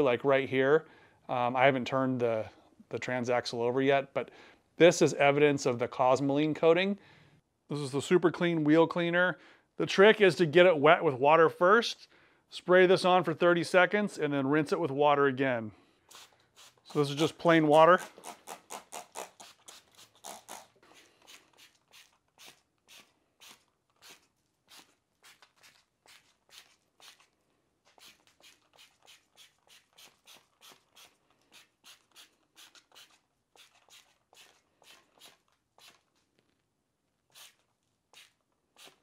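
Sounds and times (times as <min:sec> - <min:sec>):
spray bottle spritzing: 0:16.1 - 0:17.3, 0:18.0 - 0:27.3, 0:27.9 - 0:36.2, 0:37.3 - 0:39.0.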